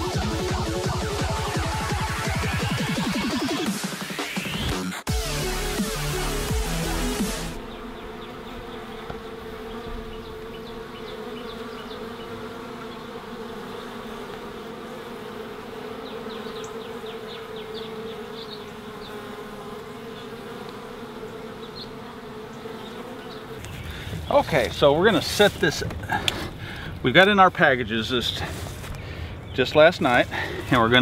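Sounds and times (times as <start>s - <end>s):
electronic music: 0.0s - 7.7s
honey bees buzzing: 0.0s - 31.0s.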